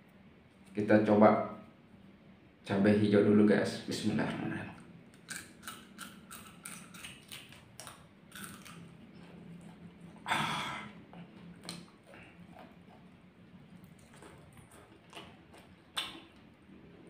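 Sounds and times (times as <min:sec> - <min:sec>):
chili crunching while chewed: 0:04.7 - 0:17.0.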